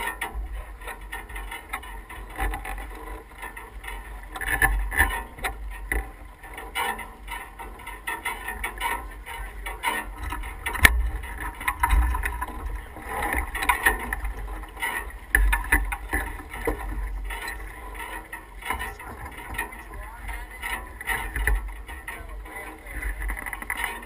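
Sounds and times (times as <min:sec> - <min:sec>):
water wash along hull: 0:00.0 - 0:24.0
wind buffeting microphone: 0:07.2 - 0:24.0.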